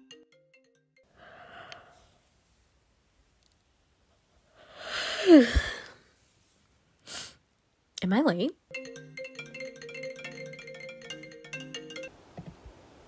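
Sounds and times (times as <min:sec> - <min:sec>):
soft breath: 0:01.1 - 0:02.6, 0:04.4 - 0:07.4
person sighing: 0:01.2 - 0:02.0, 0:04.7 - 0:06.0.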